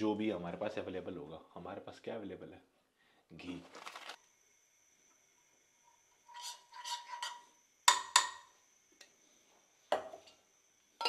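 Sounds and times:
spoon scraping ghee: 6.2s - 7.5s
spoon tapping frying pan: 7.9s - 8.5s.

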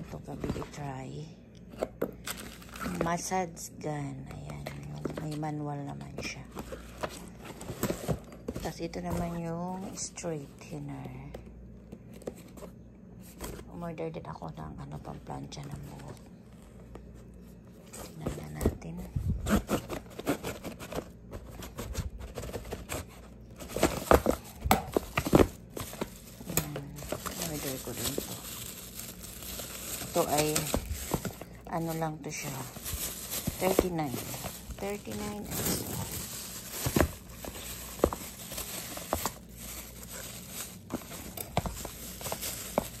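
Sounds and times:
plastic wrapping crinkling: 2.2s - 3.3s, 19.2s - 43.0s
cardboard box being opened: 32.7s - 43.0s.

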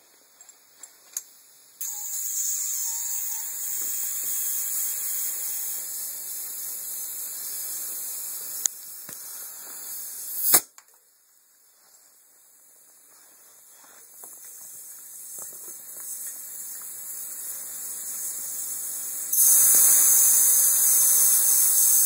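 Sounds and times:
compressed air hissing: 1.8s - 10.7s, 13.7s - 22.0s.

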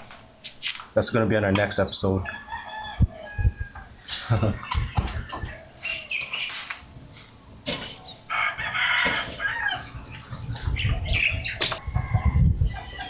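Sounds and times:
chickens clucking: 1.4s - 13.0s
rooster crowing: 2.2s - 4.9s, 8.3s - 10.0s.

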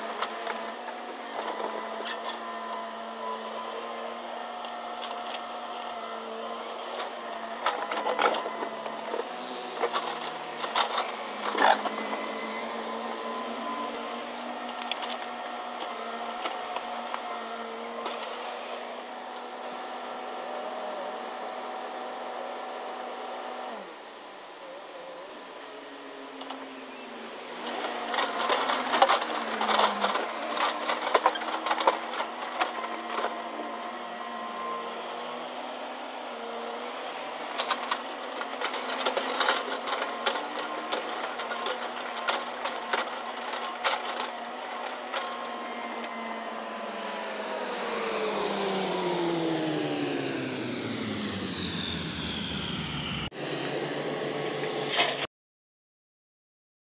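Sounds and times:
mechanical whine: 6.6s - 21.4s, 37.1s - 55.3s.

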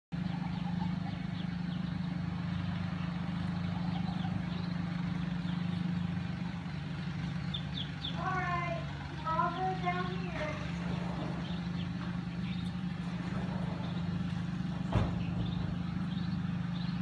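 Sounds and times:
ducklings peeping: 0.2s - 17.0s
low mechanical hum: 0.2s - 17.0s.

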